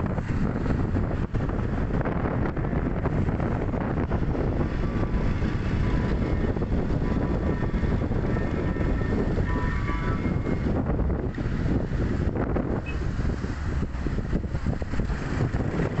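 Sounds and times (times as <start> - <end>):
traffic and road noise: 0.0 - 16.0
wind rumbling on microphone: 0.0 - 16.0.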